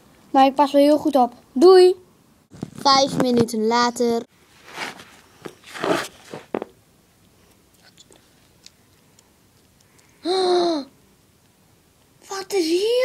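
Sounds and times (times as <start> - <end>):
rustling handling noises: 4.4 - 6.8
child moaning: 10.2 - 11.0.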